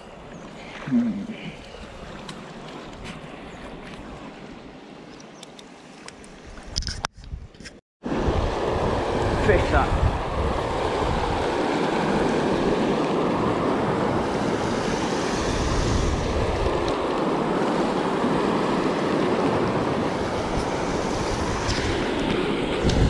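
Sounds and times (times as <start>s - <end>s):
wind buffeting microphone: 6.2s - 23.0s.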